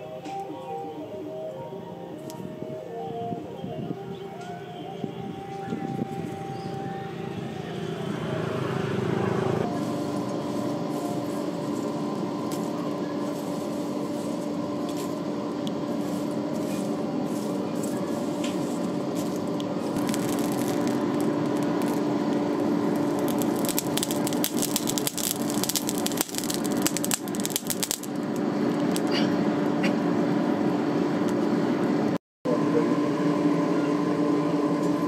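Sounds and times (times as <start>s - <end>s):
air blower humming: 1.1s - 35.0s
charcoal crackling and popping: 9.6s - 29.2s.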